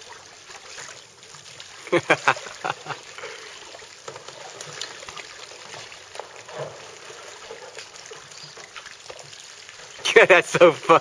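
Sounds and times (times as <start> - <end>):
water trickling and splashing: 0.0 - 11.0.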